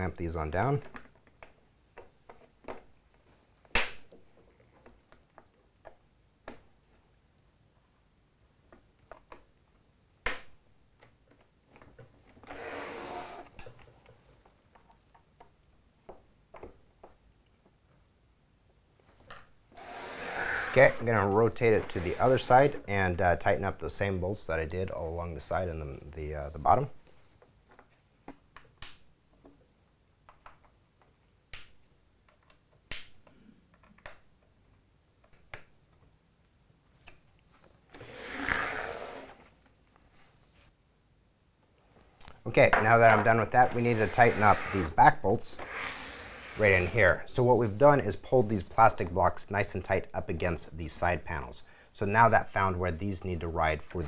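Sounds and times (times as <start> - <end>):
rasping scraping noise: 19.8 - 22.9, 43.5 - 45.0, 45.6 - 47.1.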